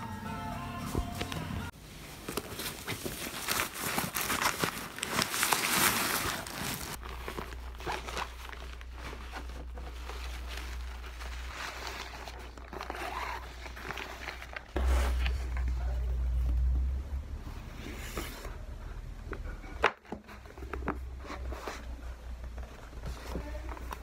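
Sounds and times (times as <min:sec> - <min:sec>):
plastic bag crinkling: 0:02.1 - 0:14.9.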